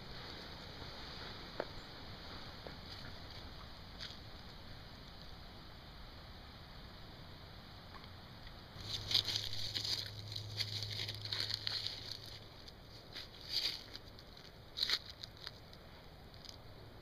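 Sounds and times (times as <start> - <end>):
low steady hum: 0.0 - 17.0
dog paws stepping through leaves: 8.8 - 15.5
dry leaves crackling and rustling: 8.8 - 16.6.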